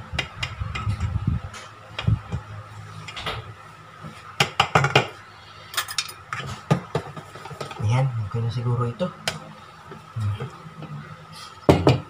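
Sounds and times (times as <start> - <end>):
utensils clinking on metal bowl: 5.7 - 6.5.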